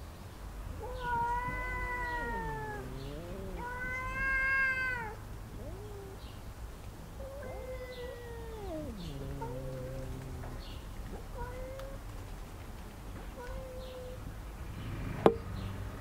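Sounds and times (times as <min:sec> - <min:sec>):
cat wailing: 0:00.8 - 0:06.2, 0:07.2 - 0:10.8
low wavering cat yowl: 0:00.8 - 0:06.3, 0:07.2 - 0:12.0.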